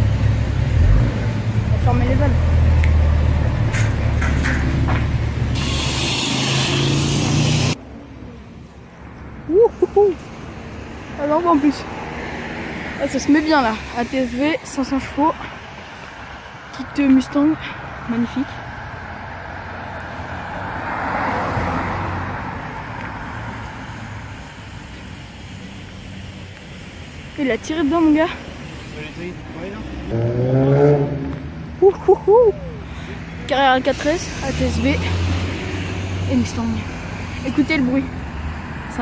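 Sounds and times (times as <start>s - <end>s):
car engine pulling away: 0.0s - 5.6s, 29.6s - 31.8s
car driving past: 18.6s - 24.2s, 29.1s - 31.8s.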